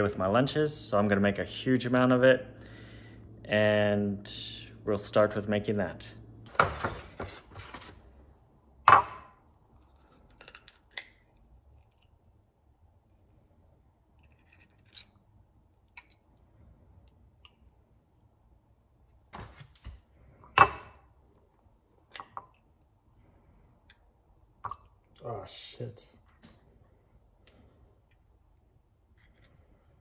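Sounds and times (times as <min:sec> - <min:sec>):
eggshell cracking: 0:14.1 - 0:16.3.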